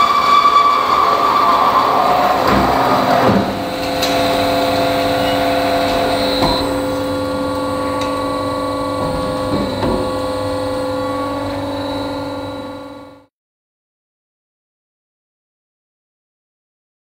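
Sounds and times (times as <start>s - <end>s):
bandsaw humming: 0.0s - 13.2s.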